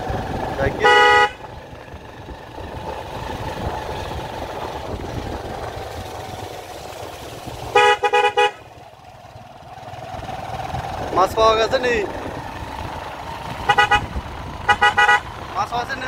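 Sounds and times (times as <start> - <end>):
motorcycle engine running: 0.0 - 16.0
motorcycle horn beeps: 0.7 - 1.5, 7.7 - 8.7, 13.6 - 15.4.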